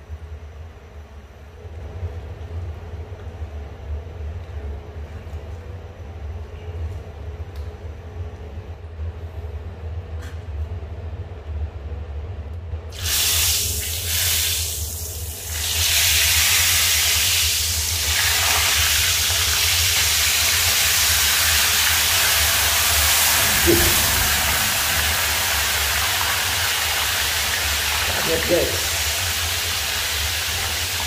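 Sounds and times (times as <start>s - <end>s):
low steady hum: 0.0s - 13.0s, 19.2s - 31.0s
fish sizzling in hot oil: 12.9s - 31.0s.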